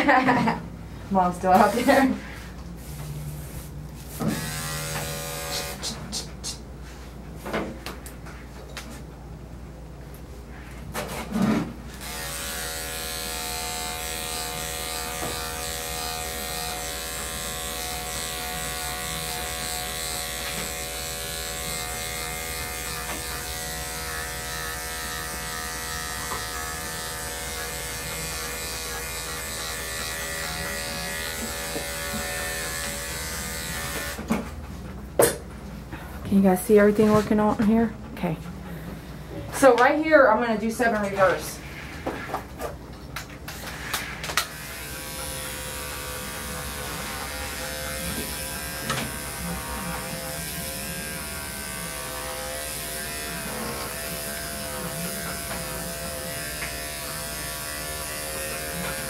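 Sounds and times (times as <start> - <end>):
electric clippers humming: 1.5 - 2.2, 3.4 - 6.3, 11.9 - 34.3, 43.5 - 59.0.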